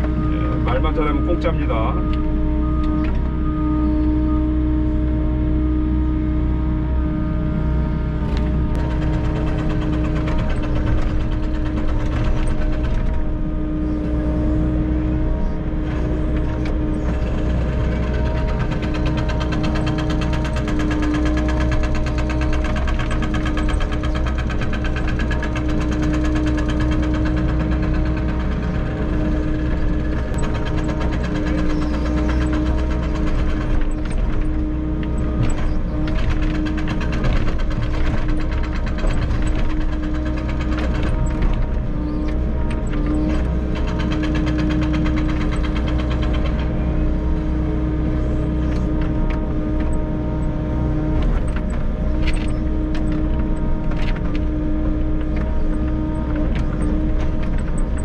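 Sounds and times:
diesel engine drone: 0.0 - 58.0
hydraulic whine: 0.0 - 58.0.

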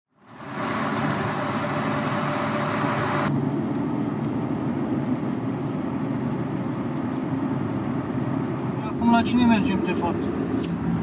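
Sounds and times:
car engine and road rumble: 0.1 - 11.0
road hiss: 0.2 - 3.3.

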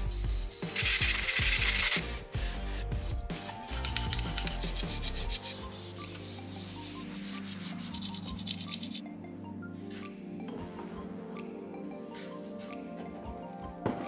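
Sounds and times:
scouring pad scrubbing metal parts: 0.0 - 9.0.

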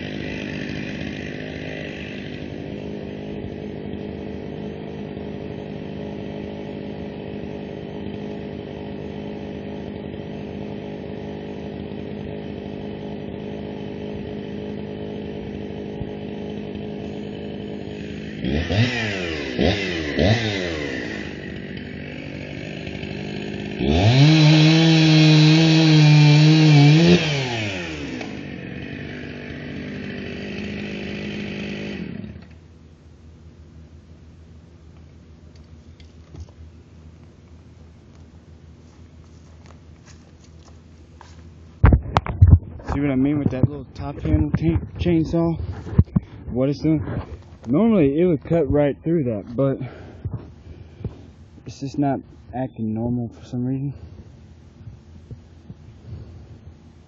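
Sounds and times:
chainsaw revving and idling: 0.0 - 32.8, 42.7 - 54.2.

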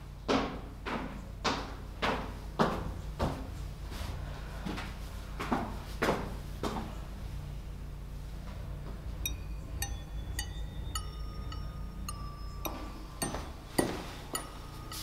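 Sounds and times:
footsteps on a staircase: 0.2 - 7.0, 12.7 - 15.0
high bell-like chimes: 9.3 - 15.0.

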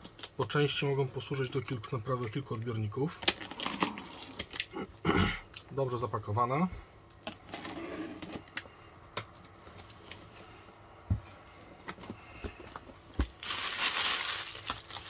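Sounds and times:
tissue paper rustling: 13.4 - 15.0.

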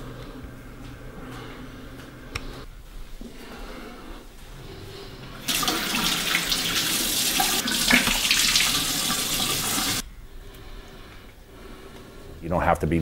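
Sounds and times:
tap running into a sink: 7.4 - 9.2.

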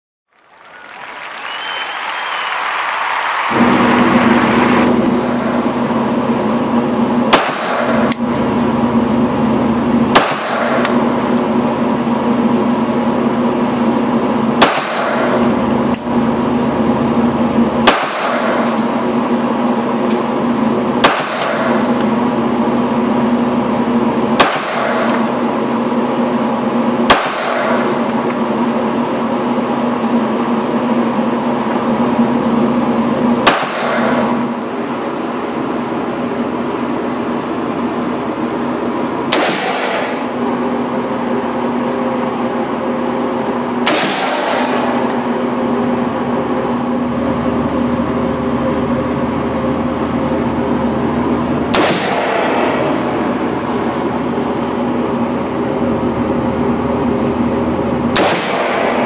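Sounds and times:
loud steady hum: 0.3 - 59.0
pistol shots: 7.3 - 8.2, 10.1 - 11.0, 14.6 - 15.5, 17.8 - 18.8, 21.0 - 21.9, 24.4 - 25.3, 27.0 - 28.0, 33.4 - 34.4, 39.3 - 40.3, 43.8 - 45.3, 51.7 - 52.9, 58.1 - 59.0.

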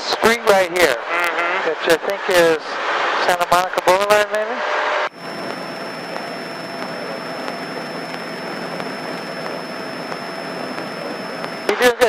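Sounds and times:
propeller airplane engine drone: 5.1 - 11.8
thin high whine: 5.1 - 12.0.

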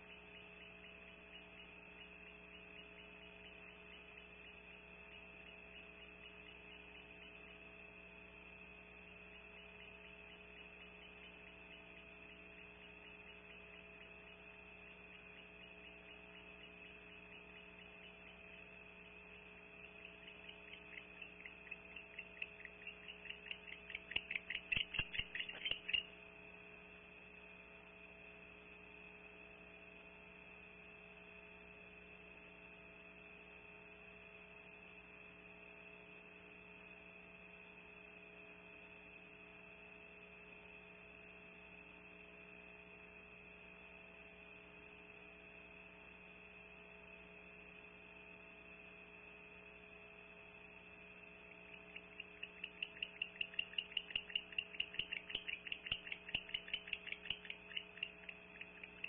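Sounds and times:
steady electrical hum: 0.0 - 59.0
owls clicking and chattering: 19.4 - 26.1, 51.7 - 59.0.

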